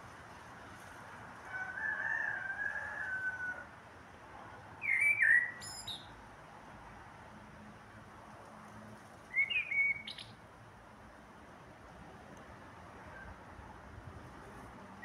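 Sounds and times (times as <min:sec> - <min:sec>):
blackbird singing: 0:04.8 - 0:06.1, 0:09.3 - 0:10.4.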